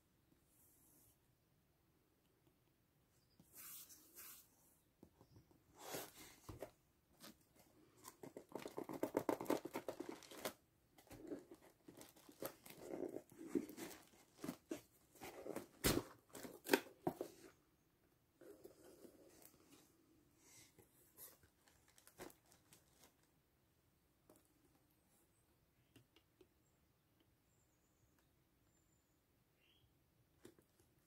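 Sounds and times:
hands rubbing and tapping cardboard: 8.0s - 10.5s.

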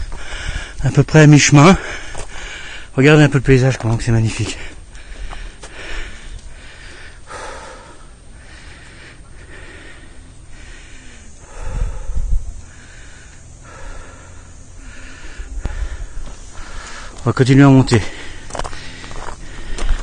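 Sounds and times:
man breathing hard: 0.0s - 0.8s, 1.7s - 3.0s, 4.4s - 17.2s, 17.8s - 20.0s
wind rumbling on microphone: 11.5s - 12.7s.

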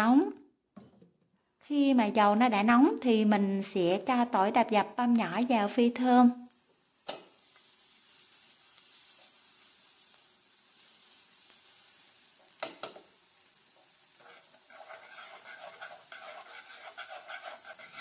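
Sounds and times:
garlic sizzling in hot oil: 1.7s - 18.0s
chopsticks scraping a pan: 7.1s - 13.0s, 13.8s - 18.0s.

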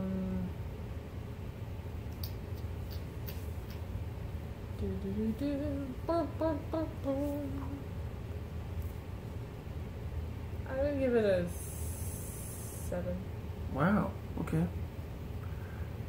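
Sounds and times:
person humming: 0.0s - 0.6s
low room hum: 0.0s - 16.0s.

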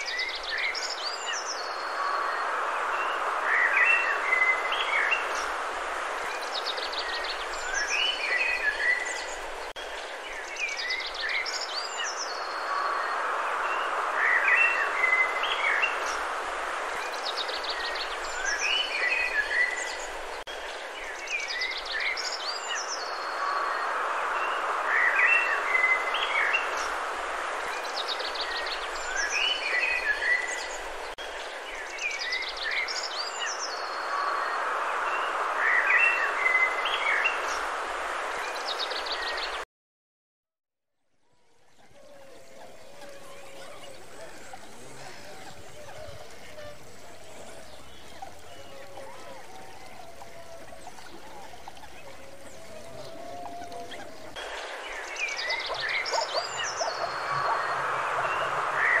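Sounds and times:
outdoor ambience hiss: 0.0s - 39.6s, 41.2s - 59.0s
birds chirping and trilling: 41.5s - 59.0s.

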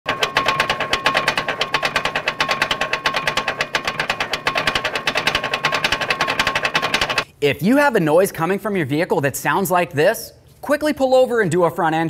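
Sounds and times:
metallic clacking from wheel hub: 0.1s - 7.3s.

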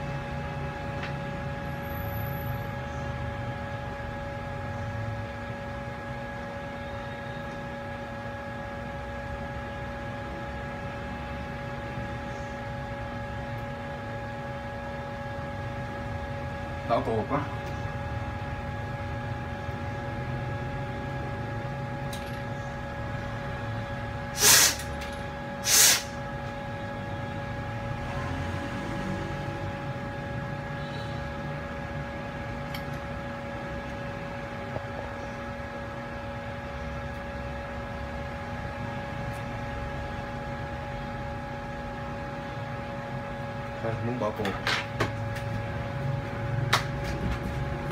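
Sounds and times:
steady machine hum: 0.0s - 47.9s
loud hissing bursts: 24.4s - 24.9s, 25.6s - 26.2s.

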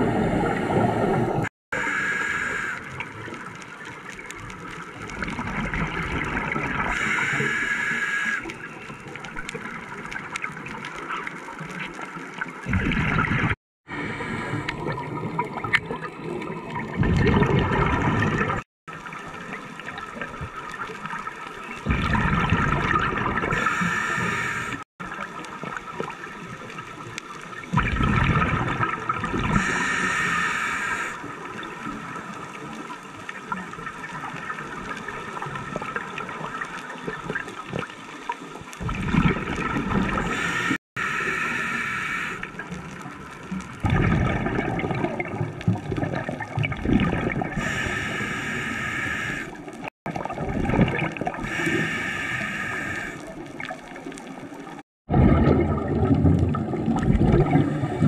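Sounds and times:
hiss and gurgle of water and air: 0.0s - 58.0s
exhaled bubbles surging: 5.0s - 8.7s, 12.4s - 20.8s, 21.7s - 26.1s, 27.5s - 31.9s, 38.8s - 58.0s.

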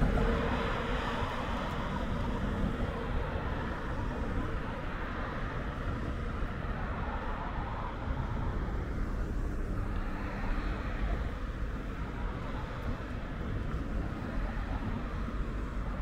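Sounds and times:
road traffic noise: 0.0s - 16.0s.

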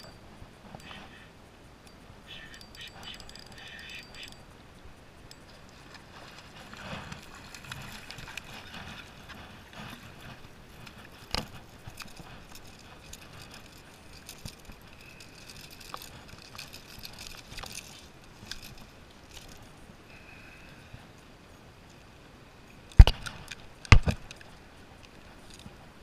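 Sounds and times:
fishing reel clicking: 0.8s - 4.5s
fishing tackle handled: 9.8s - 19.6s.

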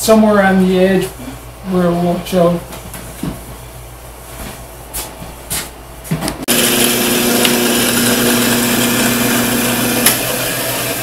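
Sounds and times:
drill press motor humming: 6.5s - 11.0s.

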